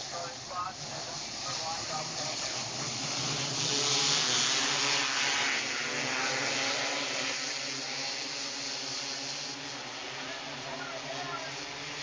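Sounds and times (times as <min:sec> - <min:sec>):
sprint car engines racing: 0:00.0 - 0:12.0.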